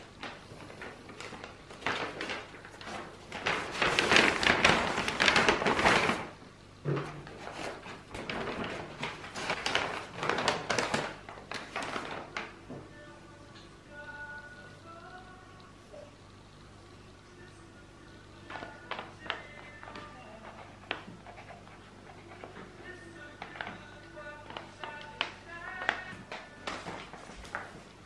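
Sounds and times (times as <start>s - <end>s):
paper rustling and crinkling: 0.0s - 6.4s, 7.0s - 12.6s, 22.2s - 28.0s.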